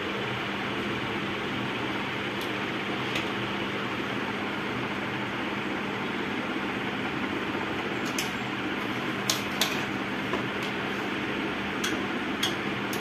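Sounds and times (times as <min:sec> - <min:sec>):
fan whooshing: 0:00.0 - 0:13.0.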